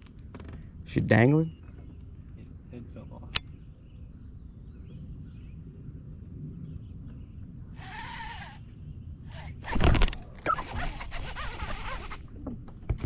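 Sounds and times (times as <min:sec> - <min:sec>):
faint bird chirps: 0:01.1 - 0:09.5
wind rumble: 0:03.7 - 0:13.0
bird call rising and falling: 0:07.8 - 0:12.2.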